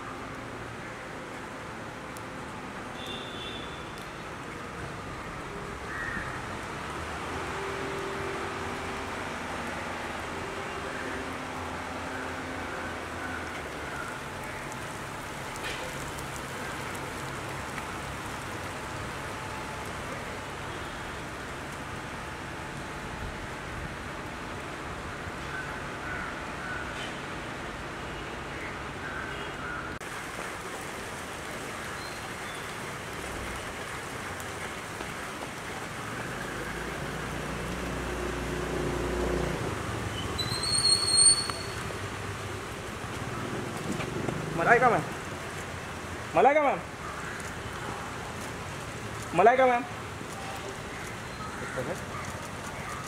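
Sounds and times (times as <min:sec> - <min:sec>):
outdoor hiss on wet street: 0:00.0 - 0:53.0
outdoor hiss: 0:30.0 - 0:50.4.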